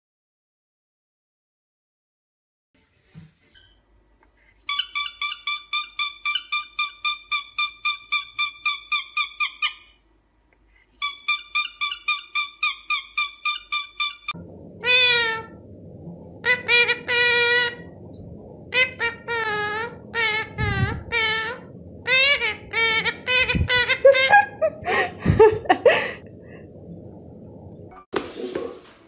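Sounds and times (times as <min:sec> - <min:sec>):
background noise: 0:02.8 - 0:15.0, 0:17.3 - 0:29.0
cockatiel whistled chirps: 0:04.7 - 0:09.9, 0:11.0 - 0:14.3
parakeet call: 0:04.7 - 0:10.0, 0:11.0 - 0:15.6, 0:16.4 - 0:17.9, 0:18.7 - 0:24.6.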